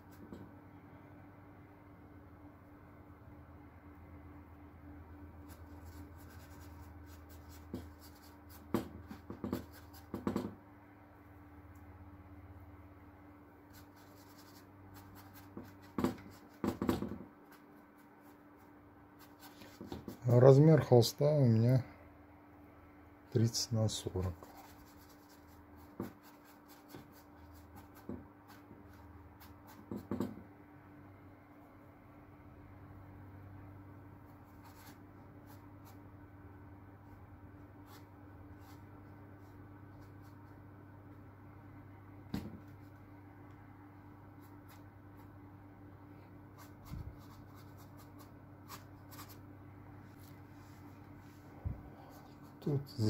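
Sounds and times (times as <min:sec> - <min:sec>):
faint steady hum: 0:00.0 - 0:53.0
paintbrush scratching on canvas: 0:05.4 - 0:10.5, 0:13.7 - 0:20.4, 0:24.1 - 0:30.2, 0:46.5 - 0:49.4
dull knock: 0:08.7 - 0:10.6, 0:16.0 - 0:17.3, 0:29.9 - 0:30.4.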